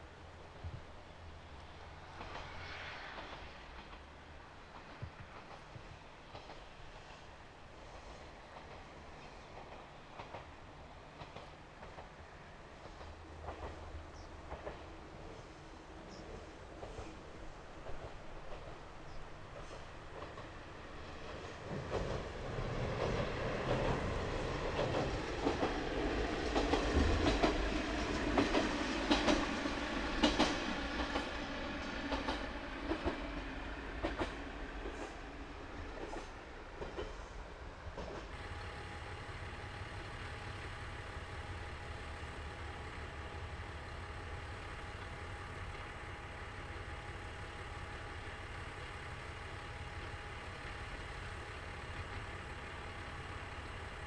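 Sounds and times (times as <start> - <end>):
diesel railcar running past: 0.0 - 54.0
wheels clicking over rail joints: 14.4 - 14.9, 21.2 - 35.1
diesel engine idling: 38.4 - 54.0.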